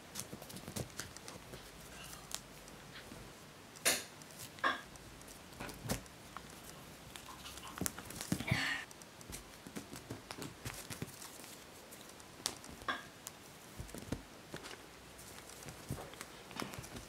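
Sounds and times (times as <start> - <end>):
paws tapping and thumping: 0.0 - 3.4, 4.2 - 17.0
fabric rustling: 4.3 - 17.0.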